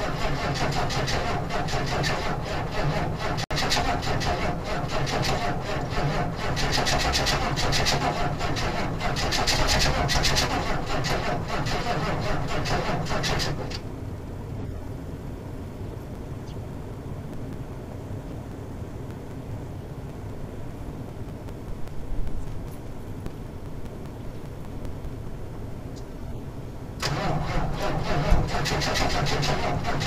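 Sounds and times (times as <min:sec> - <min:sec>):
diesel engine cranking unevenly: 0:00.0 - 0:13.8, 0:27.0 - 0:30.0
quiet steady sound: 0:00.0 - 0:30.0.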